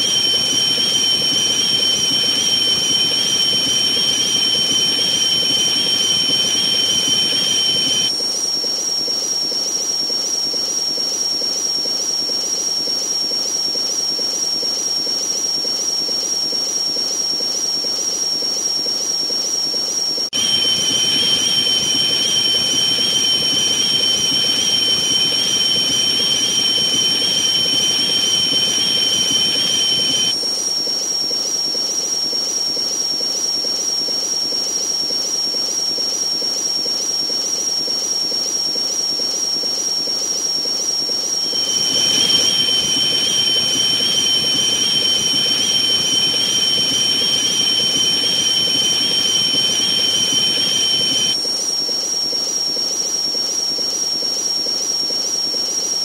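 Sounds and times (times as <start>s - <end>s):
high whistling tone: 0.0s - 8.1s, 20.4s - 30.4s, 41.4s - 51.4s
white noise hiss: 0.0s - 8.1s, 20.4s - 30.3s, 41.4s - 51.4s
low whistle: 0.0s - 8.2s, 20.4s - 30.4s, 41.4s - 51.4s.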